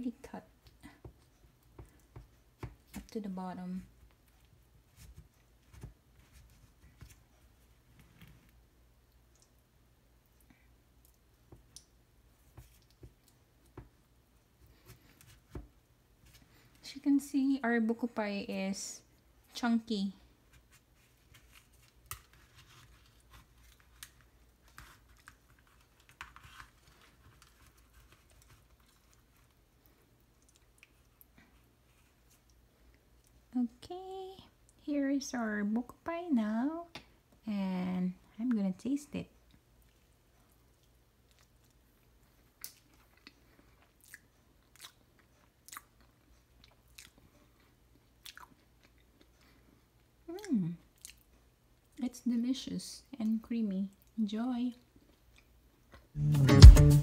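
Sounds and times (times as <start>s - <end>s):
chewing with mouth clicks: 28.4s - 31.4s, 39.4s - 51.5s.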